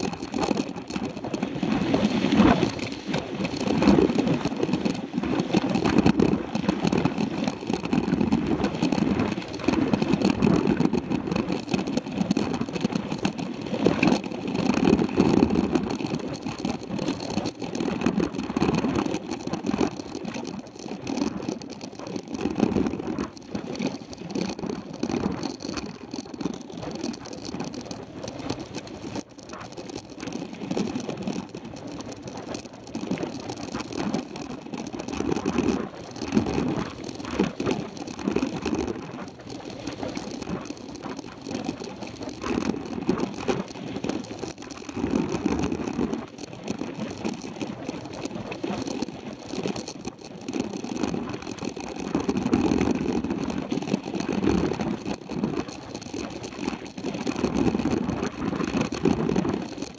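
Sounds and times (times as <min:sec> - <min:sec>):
bike rattling over gravel: 0:00.0 - 0:59.9.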